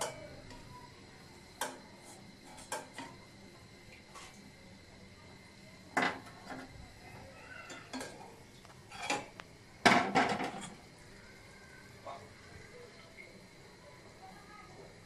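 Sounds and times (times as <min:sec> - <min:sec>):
metal kitchenware clattering: 0:07.7 - 0:08.2, 0:08.9 - 0:10.8.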